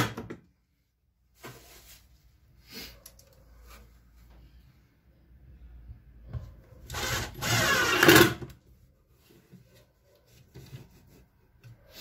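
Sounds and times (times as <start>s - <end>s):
cordless drill driving a screw: 6.9s - 8.4s.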